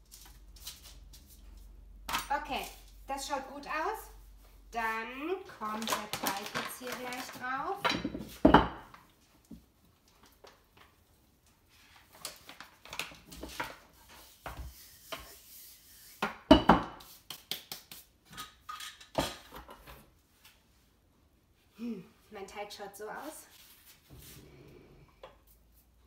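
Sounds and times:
kitchen things clattering on countertop: 5.8s - 9.0s, 18.3s - 20.0s.

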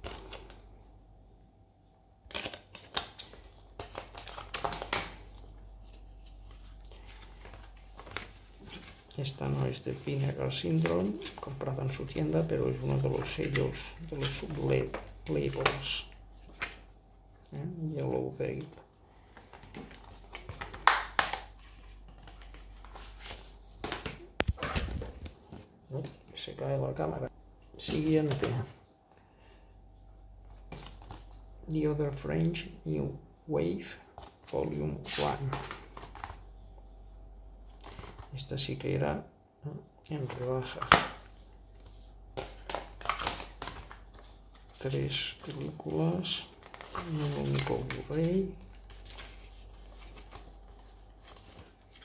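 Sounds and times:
plastic packaging rustling: 2.2s - 16.9s, 40.2s - 52.0s.

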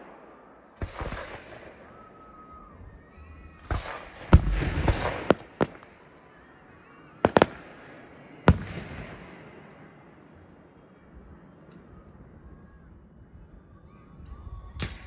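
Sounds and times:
crackling sparks hiss: 0.0s - 9.9s
firework shells bursting: 3.6s - 6.2s, 7.2s - 9.6s.

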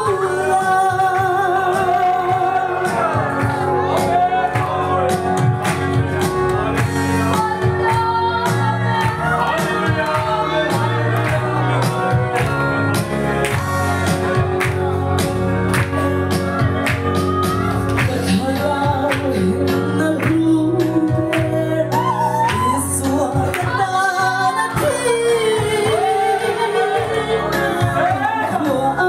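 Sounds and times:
woman singing through microphone: 0.0s - 4.1s, 7.1s - 12.6s, 18.0s - 29.0s
amplified backing music: 0.0s - 29.0s
rhythmic hand clapping: 0.1s - 22.8s, 23.4s - 23.9s.

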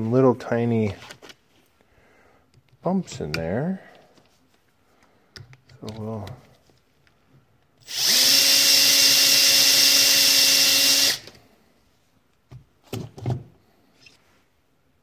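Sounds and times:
cordless drill spinning: 7.8s - 11.4s.

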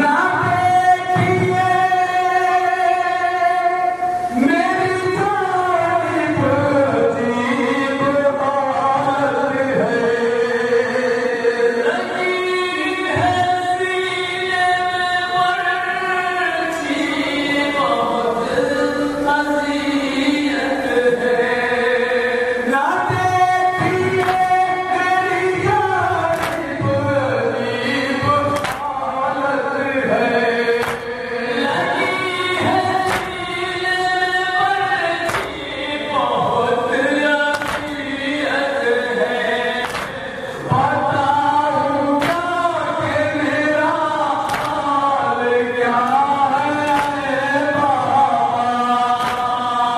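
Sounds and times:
men chanting in chorus: 0.0s - 49.9s
sharp slaps: 24.2s - 24.6s, 26.3s - 27.0s, 28.5s - 29.0s, 30.8s - 31.3s, 33.0s - 33.8s, 35.2s - 35.8s, 37.5s - 38.3s, 39.8s - 40.5s, 42.2s - 42.8s, 44.4s - 45.0s, 46.8s - 47.5s, 49.2s - 49.9s.

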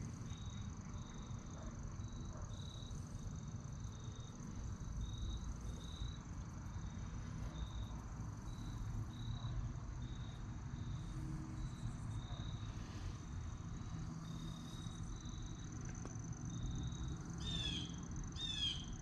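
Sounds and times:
insects chirping: 0.1s - 19.0s
steady high insect tone: 0.1s - 19.0s.

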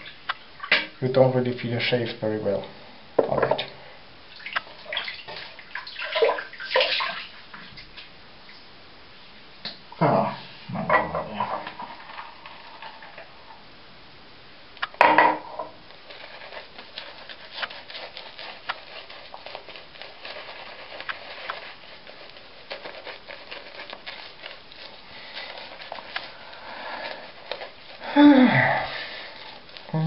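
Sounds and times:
shaving brush squishing lather: 15.8s - 30.0s.

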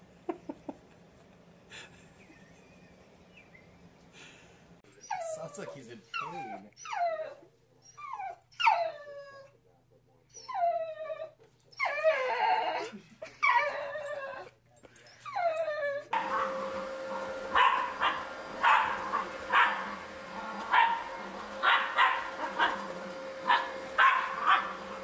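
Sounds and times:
dog whining: 5.0s - 9.6s, 10.3s - 25.0s
dog barking: 16.2s - 25.0s.

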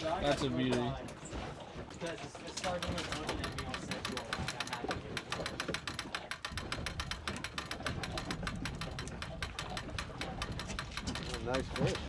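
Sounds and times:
fishing reel clicking: 2.6s - 12.0s.

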